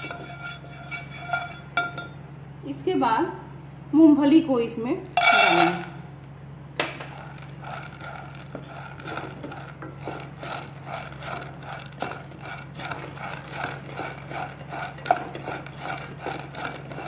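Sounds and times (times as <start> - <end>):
spatula stirring: 0.0 - 2.0, 6.9 - 17.0
peanuts rattling in a pan: 5.2 - 5.8, 6.8 - 17.0.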